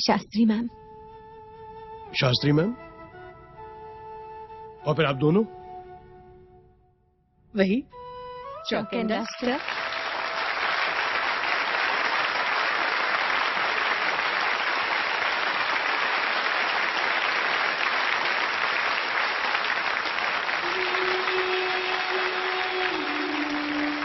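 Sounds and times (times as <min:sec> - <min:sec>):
audience applauding: 0:09.3 - 0:24.0.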